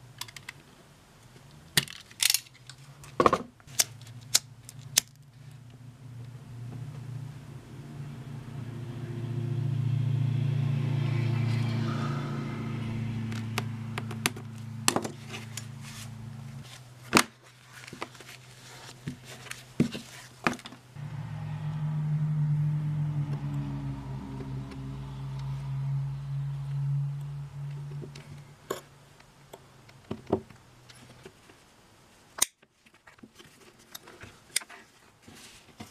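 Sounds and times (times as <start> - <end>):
steady low hum: 4.4 - 17.1, 20.9 - 31.0.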